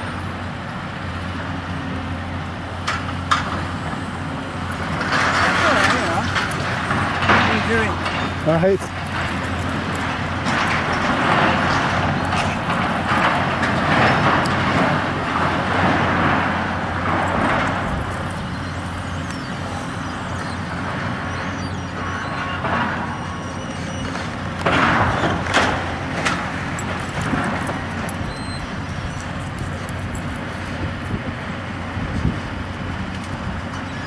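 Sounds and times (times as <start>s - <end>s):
excavator running: 0.0s - 34.0s
falling debris crashes: 4.8s - 18.3s, 24.3s - 28.1s
metal sheeting and rubble scraping: 4.8s - 18.8s.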